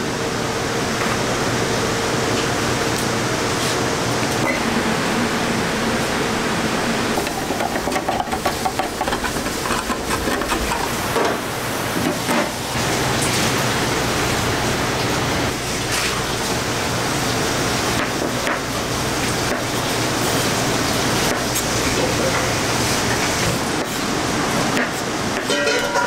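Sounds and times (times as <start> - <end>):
can opener clicking and scraping: 7.7 - 10.9.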